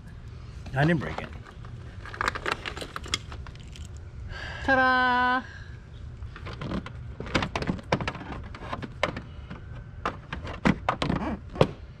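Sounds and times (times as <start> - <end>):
keys and parts clicking: 1.2 - 4.0.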